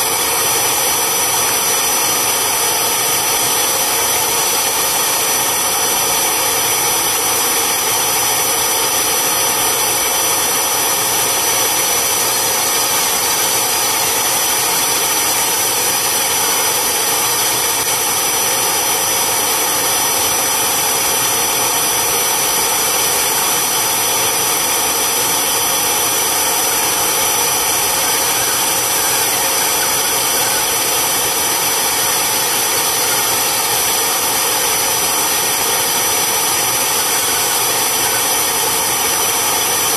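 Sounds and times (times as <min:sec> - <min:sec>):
vacuum motor hissing and whining: 0:00.0 - 0:39.9.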